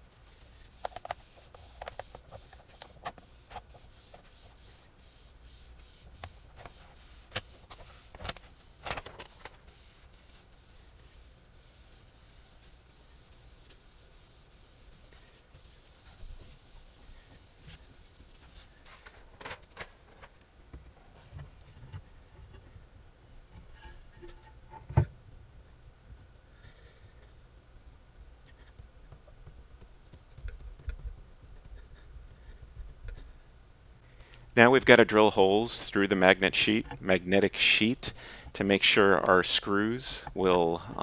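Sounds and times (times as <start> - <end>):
paper towel wiping: 0.0 - 19.0, 28.5 - 33.4.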